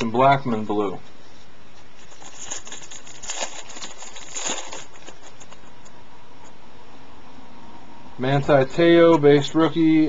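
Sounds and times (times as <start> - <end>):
card wrapper crinkling: 1.8 - 5.8.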